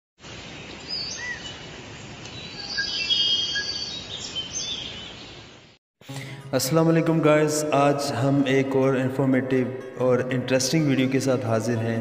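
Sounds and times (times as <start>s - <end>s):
steady forest hiss: 0.2s - 5.8s
birds chirping and whistling: 0.9s - 1.6s, 2.4s - 5.5s.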